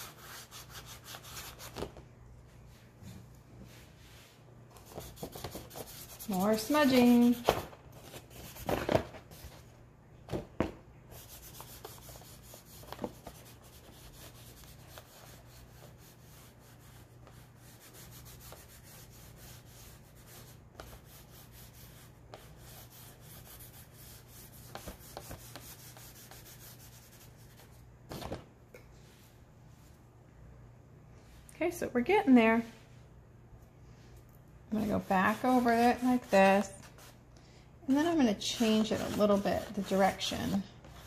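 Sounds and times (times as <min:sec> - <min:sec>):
hand rubbing chalk on board: 0:00.0 - 0:01.8, 0:03.7 - 0:07.4, 0:11.1 - 0:27.7, 0:34.7 - 0:37.2, 0:37.9 - 0:41.0.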